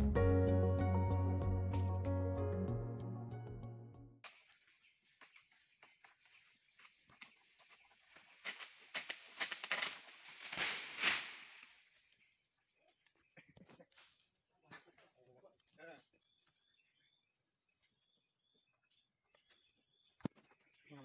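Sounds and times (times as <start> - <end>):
insect drone: 4.2 - 21.0
pole sickle cutting palm fronds: 8.4 - 11.7.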